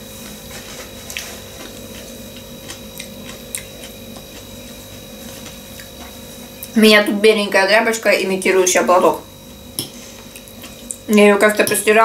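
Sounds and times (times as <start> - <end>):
faint steady hum: 0.0 - 12.0
soft chewing: 0.2 - 6.8, 9.8 - 11.1.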